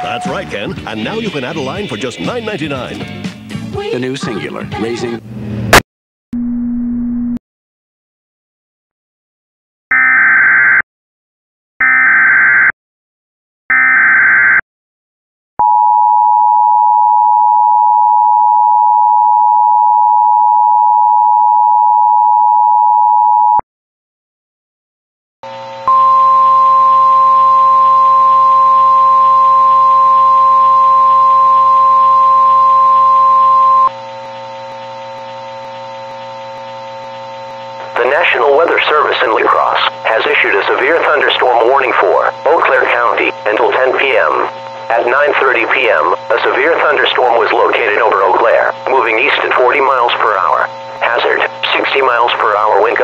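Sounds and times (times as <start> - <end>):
buzzing drone: 25.5 - 53.0
steady high tone: 25.8 - 36.7
two-tone attention signal: 25.9 - 36.8.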